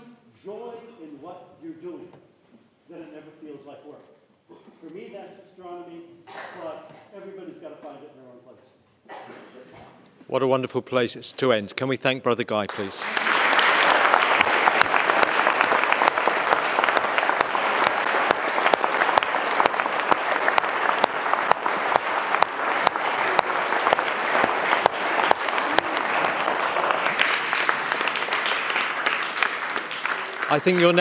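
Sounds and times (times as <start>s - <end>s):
audience applauding: 12.7s - 31.0s.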